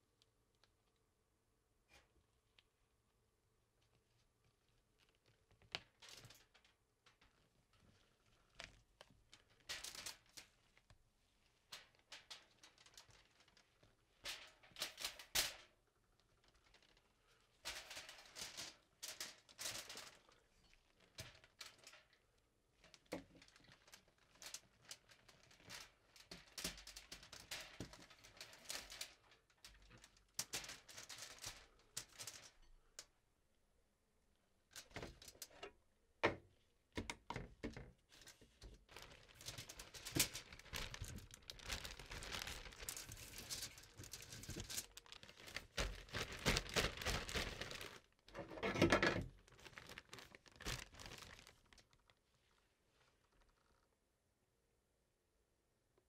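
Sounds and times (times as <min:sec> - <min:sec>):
foil crinkling: 0:11.8 - 0:22.2, 0:22.8 - 0:32.6, 0:38.2 - 0:48.4, 0:49.2 - 0:52.2.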